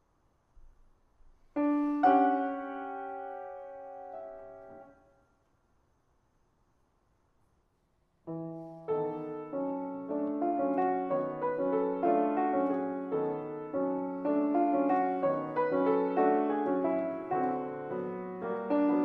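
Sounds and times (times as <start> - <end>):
piano music: 1.6 - 5.2, 8.3 - 19.0.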